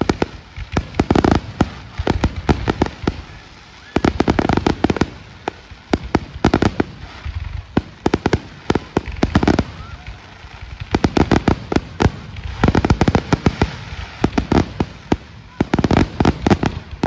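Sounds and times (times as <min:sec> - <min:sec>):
fireworks banging: 0:00.0 - 0:17.0.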